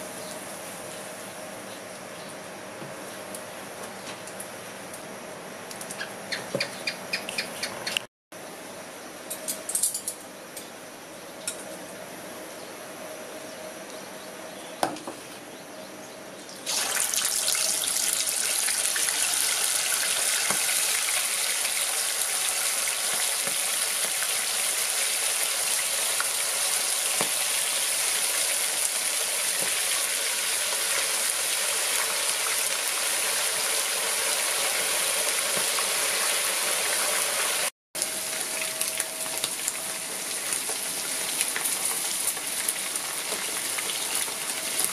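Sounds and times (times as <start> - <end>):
ribs deep-frying sizzle: 16.6 - 44.9.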